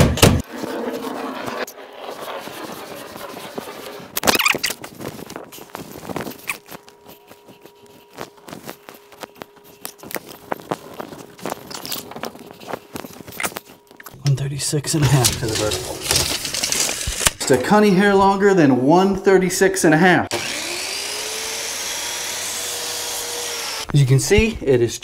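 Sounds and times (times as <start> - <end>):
hand tools clicking and scraping: 0.6 - 17.9.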